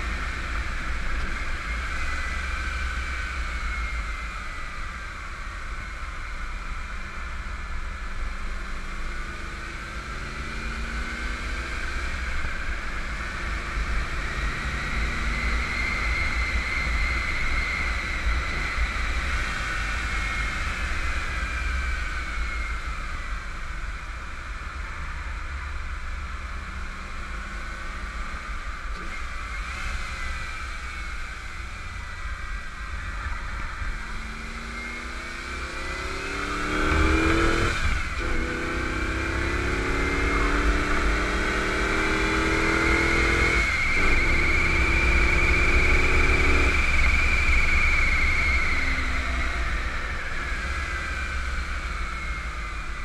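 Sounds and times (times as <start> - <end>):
car engine accelerating: 28.2 - 53.0.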